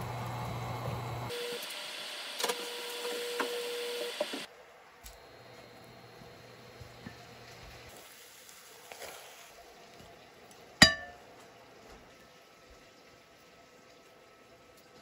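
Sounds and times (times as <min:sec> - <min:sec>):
utensil clinking on ceramic plate: 0:10.8 - 0:11.2.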